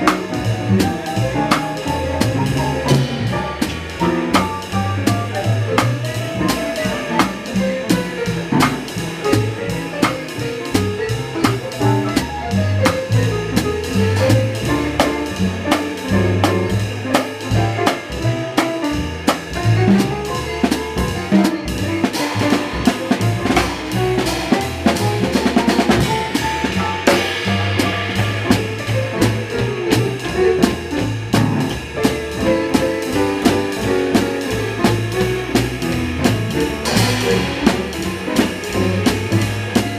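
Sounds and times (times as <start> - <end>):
drum kit played with sticks: 0.0 - 39.9
drum roll: 0.0 - 39.9
piano: 0.0 - 39.9
walking double bass: 0.0 - 39.9.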